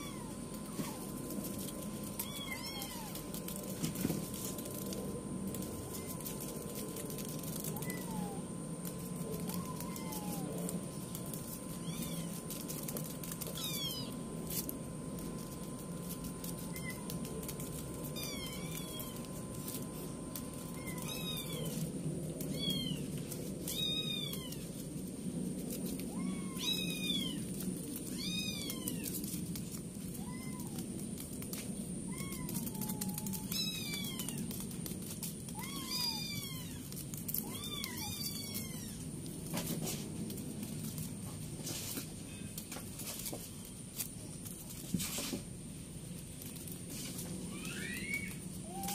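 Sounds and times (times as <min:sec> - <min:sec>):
steady low hum: 0:00.0 - 0:48.9
kittens mewing: 0:02.0 - 0:03.7, 0:07.2 - 0:14.3, 0:16.2 - 0:24.8, 0:30.0 - 0:31.0, 0:32.0 - 0:39.2, 0:47.2 - 0:48.9.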